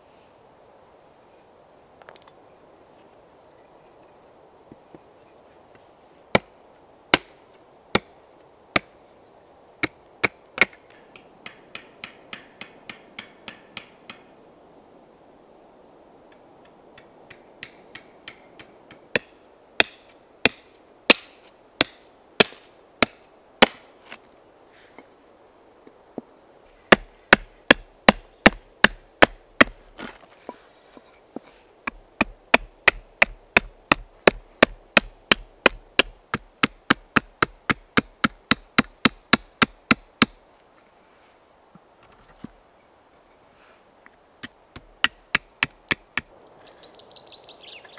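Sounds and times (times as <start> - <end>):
billhook chopping wood: 7.1 - 7.3, 9.8 - 14.2, 17.0 - 23.8, 26.9 - 30.2, 31.9 - 40.4, 44.4 - 46.3.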